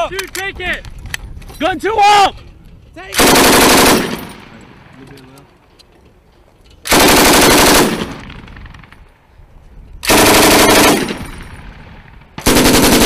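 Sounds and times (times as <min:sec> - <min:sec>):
machine gun bursts: 0:03.2 - 0:04.4, 0:06.9 - 0:08.2, 0:10.1 - 0:11.4, 0:12.4 - 0:13.0.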